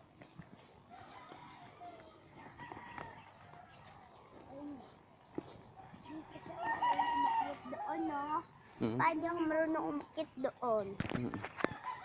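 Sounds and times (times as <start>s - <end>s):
rooster crowing: 0.8s - 4.1s, 5.7s - 8.4s, 11.6s - 12.0s.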